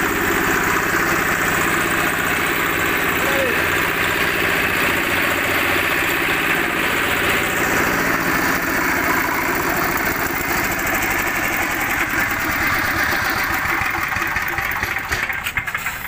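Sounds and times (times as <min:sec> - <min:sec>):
diesel engine running: 0:00.0 - 0:16.0
air compressor clatter and hiss: 0:13.0 - 0:16.0.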